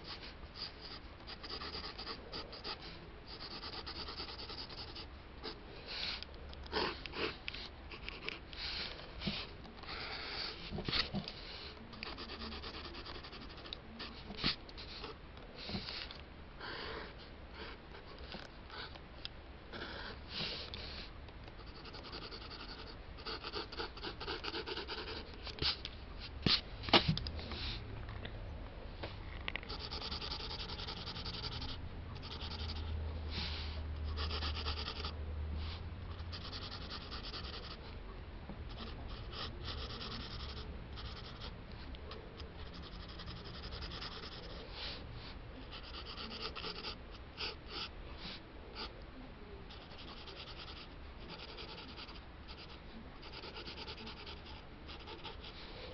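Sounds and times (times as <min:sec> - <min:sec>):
pencil sketching on paper: 0:00.0 - 0:05.6, 0:11.9 - 0:15.2, 0:21.6 - 0:25.3, 0:29.7 - 0:32.9, 0:34.1 - 0:35.2, 0:36.1 - 0:37.8, 0:38.7 - 0:41.5, 0:42.4 - 0:44.6, 0:45.6 - 0:47.9, 0:49.7 - 0:55.6.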